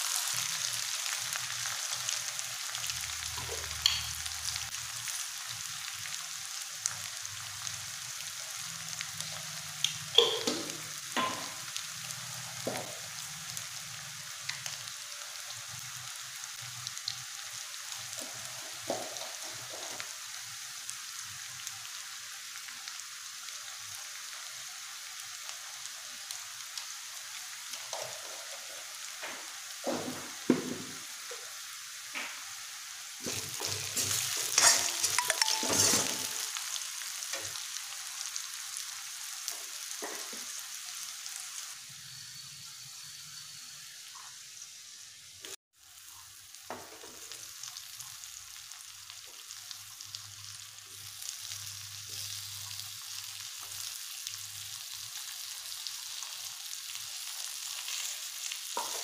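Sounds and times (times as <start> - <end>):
onions sizzling in hot oil: 0.0 - 59.0
metal spoon scraping a pan: 33.3 - 36.6.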